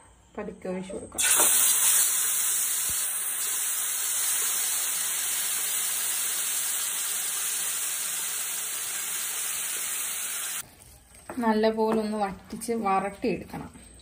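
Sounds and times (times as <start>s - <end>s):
meat and gravy sizzling in oil: 1.2s - 10.6s.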